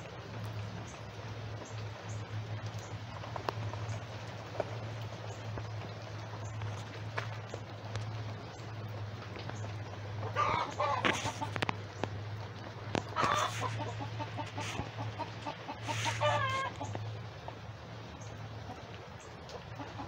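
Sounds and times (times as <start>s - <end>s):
chickens clucking: 9.2s - 20.0s.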